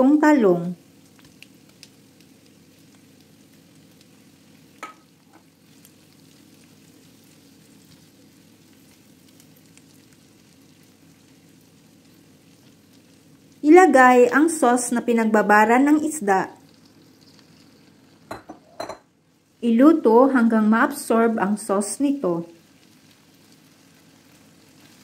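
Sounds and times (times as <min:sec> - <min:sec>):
oil sizzling in a wok: 0:00.0 - 0:25.0
spatula stirring in pan: 0:22.6 - 0:25.0.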